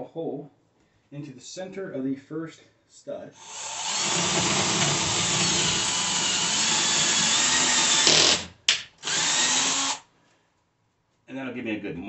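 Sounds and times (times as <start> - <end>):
cordless drill boring into wood: 3.4 - 10.0.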